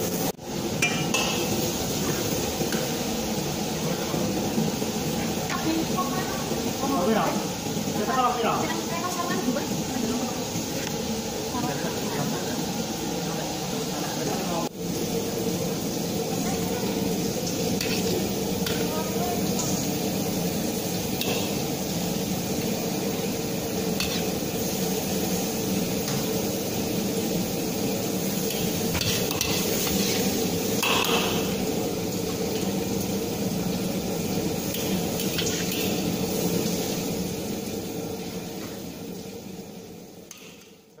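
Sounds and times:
kitchen hum: 0.0 - 41.0
metal ladle scraping a wok: 28.5 - 31.6.

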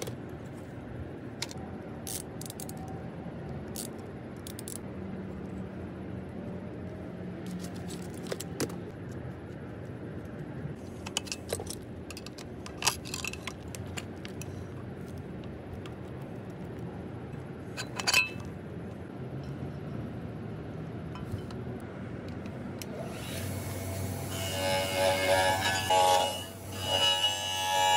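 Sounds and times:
metal parts clinking: 11.0 - 14.2, 17.8 - 18.5.

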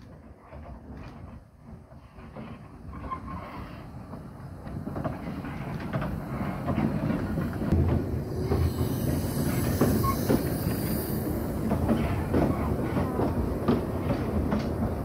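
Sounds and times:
clanks of wheels and couplings: 0.0 - 15.0
train rumble: 0.0 - 15.0
steam hiss: 5.2 - 15.0.

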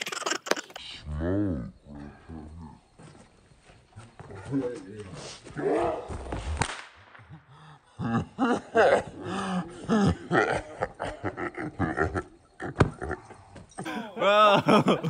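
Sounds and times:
sharp pop: 6.4 - 7.2
men laughing: 7.2 - 12.4, 13.8 - 15.0.

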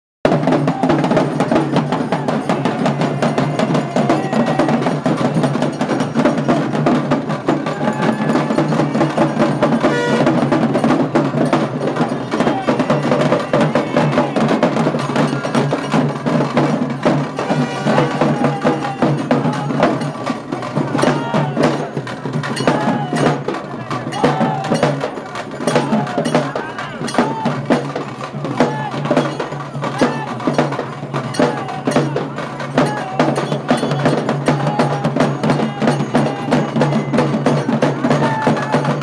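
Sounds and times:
fast loud percussion: 0.2 - 39.0
crowd shouting: 0.3 - 39.0.

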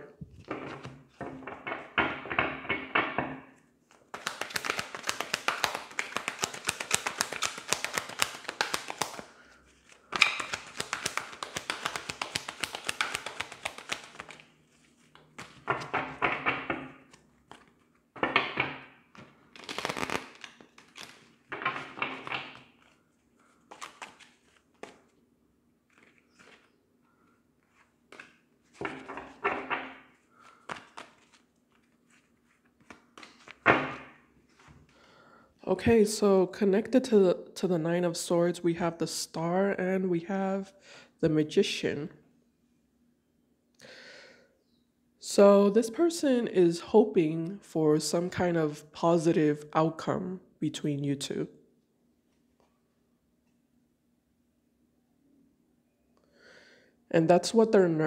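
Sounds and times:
cards being shuffled: 0.3 - 2.8, 3.9 - 25.2, 25.8 - 34.8
cards slapped onto cloth: 4.0 - 9.2, 10.1 - 14.4.

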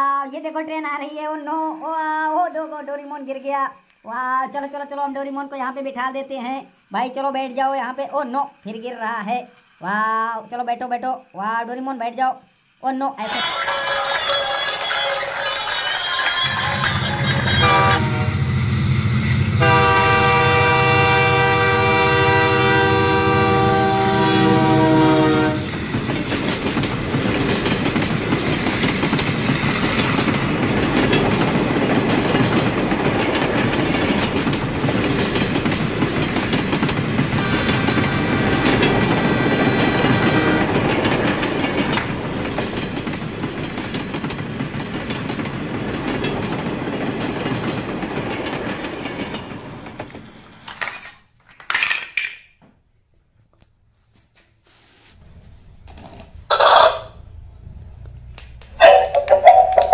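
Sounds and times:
toy train clickety-clack rattle: 3.3 - 4.6, 6.2 - 17.9, 25.7 - 49.5
toy train horn: 13.2 - 18.4, 19.6 - 25.7, 37.4 - 38.9, 39.6 - 40.8.

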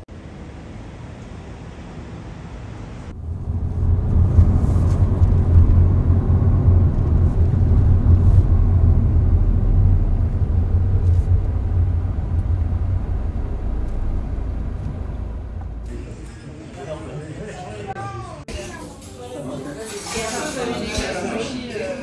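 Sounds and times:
car engine and tyre noise: 0.1 - 16.4.

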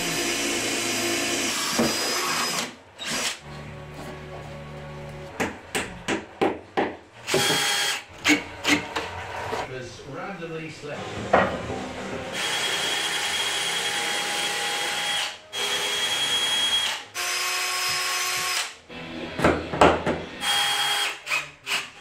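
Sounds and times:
drill drilling into wood: 0.0 - 3.4, 7.3 - 8.0, 12.4 - 18.7, 20.4 - 22.0.

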